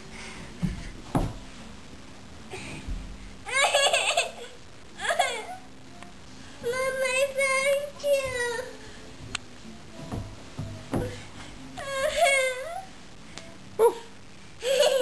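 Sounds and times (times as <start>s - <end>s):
toddler laughing: 3.5s - 5.6s, 14.6s - 15.0s.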